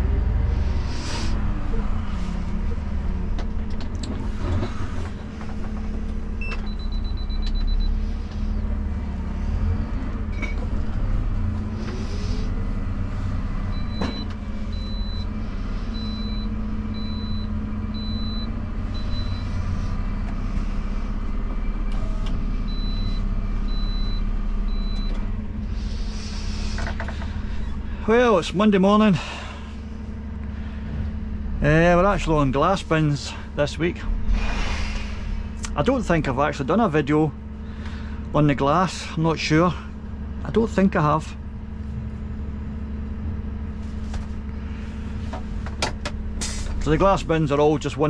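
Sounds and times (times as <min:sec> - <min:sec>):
truck diesel engine running: 0:00.0 - 0:48.0.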